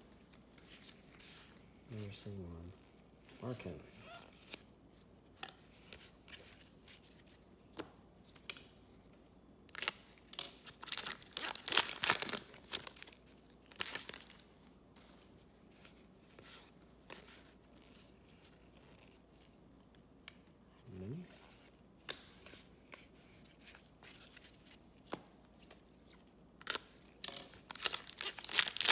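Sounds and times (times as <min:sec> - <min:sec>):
foil pack tearing and crinkling: 0:09.7 - 0:13.1, 0:26.6 - 0:28.9.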